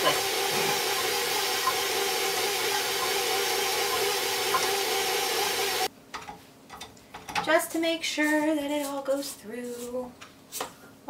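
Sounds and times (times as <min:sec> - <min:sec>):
stand mixer motor humming: 0:00.0 - 0:05.9.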